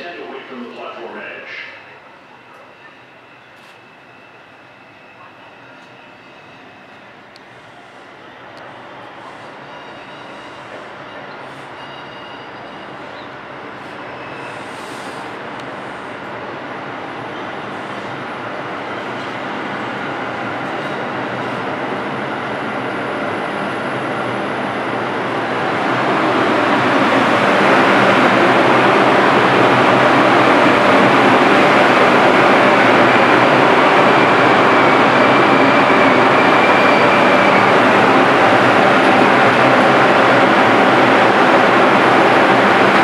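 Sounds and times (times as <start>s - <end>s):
subway train rolling into station: 0.0s - 43.0s.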